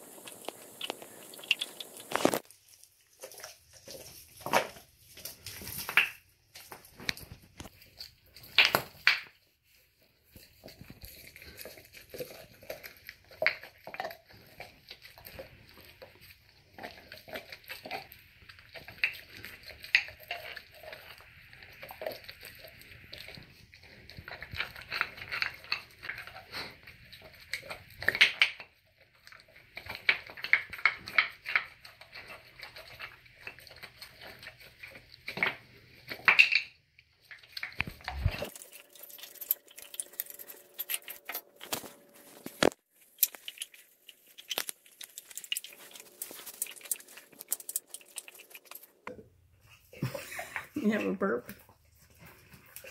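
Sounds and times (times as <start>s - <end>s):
dog chewing meat and bone: 0.0s - 50.0s, 51.6s - 52.9s.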